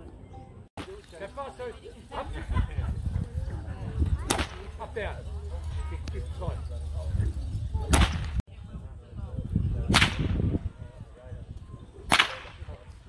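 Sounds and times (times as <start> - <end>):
whip cracking: 4.2 - 4.8, 7.8 - 8.4, 9.9 - 10.4, 12.1 - 12.7.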